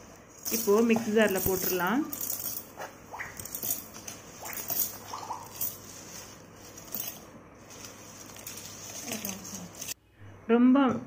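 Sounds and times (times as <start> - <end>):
seeds rattling into steel jar: 3.4 - 9.9.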